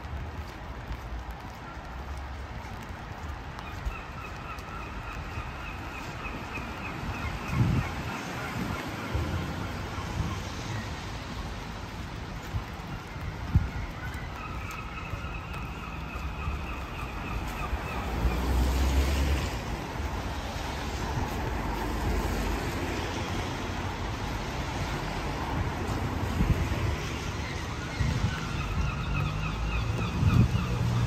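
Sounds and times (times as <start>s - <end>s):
background traffic noise: 0.0s - 31.0s
vehicle passing: 18.0s - 26.5s.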